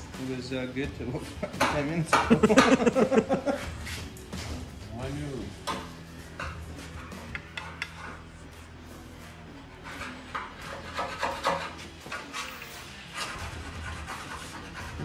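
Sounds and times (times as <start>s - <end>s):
hand tools knocking on metal: 1.4s - 3.4s.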